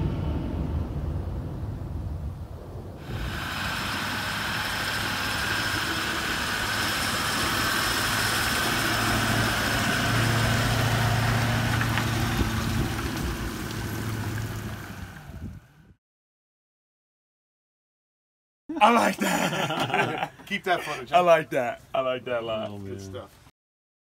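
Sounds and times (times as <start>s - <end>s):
constant hiss: 2.1s - 15.5s, 18.8s - 23.5s
engine running steadily: 3.0s - 15.8s.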